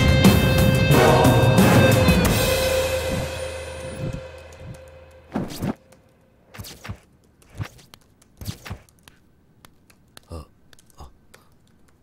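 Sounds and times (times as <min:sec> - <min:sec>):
background music: 0:00.0 - 0:06.3.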